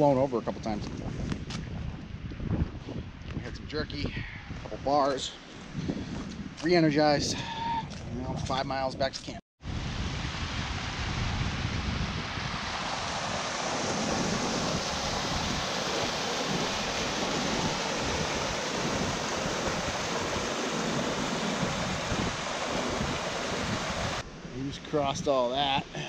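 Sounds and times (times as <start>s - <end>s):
wind rumble on microphone: 0.0s - 25.4s
stream rushing over rocks: 12.2s - 24.2s.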